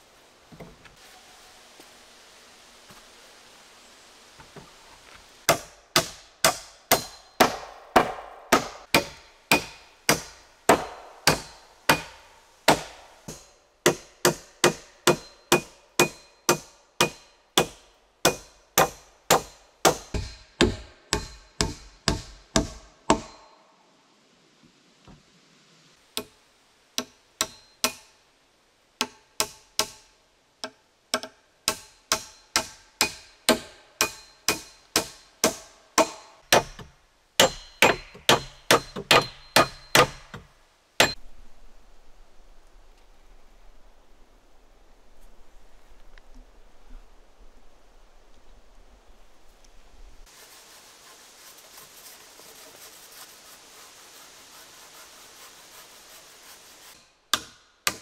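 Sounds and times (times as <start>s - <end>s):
hammer striking nails into wood: 5.5s - 23.4s, 30.6s - 40.4s, 57.3s - 58.0s.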